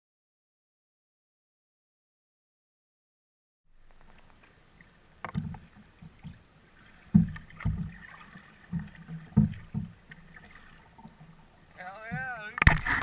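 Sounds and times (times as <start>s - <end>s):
kayak paddle knocks and thumps: 5.2s - 6.4s, 7.0s - 13.0s.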